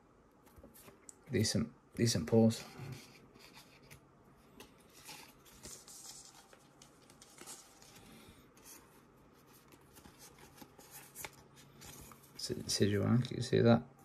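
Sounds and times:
card rustling and scraping: 2.6s - 13.0s.

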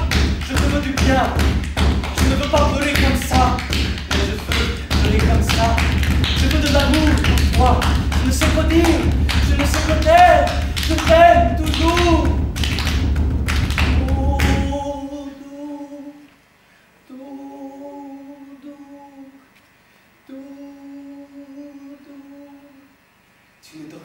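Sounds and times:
voice holding long steady notes: 0.0s - 13.0s, 13.6s - 16.3s, 17.0s - 19.5s, 20.2s - 23.0s
loud noise with knocks: 0.0s - 15.0s.

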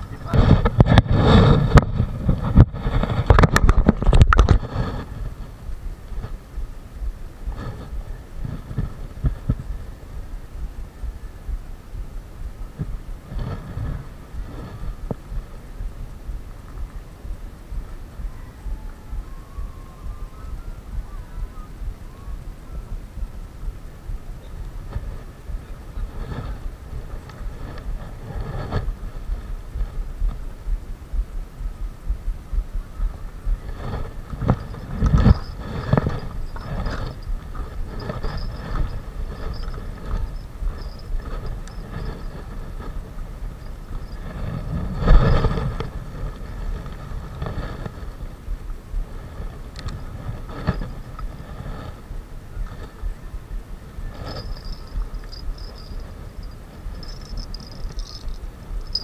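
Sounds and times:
wind rumbling on microphone: 0.0s - 59.0s.

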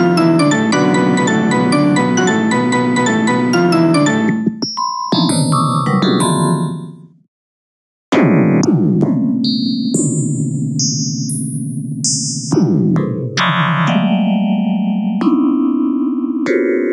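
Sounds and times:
dense synthesized keyboard chords: 0.0s - 4.6s.

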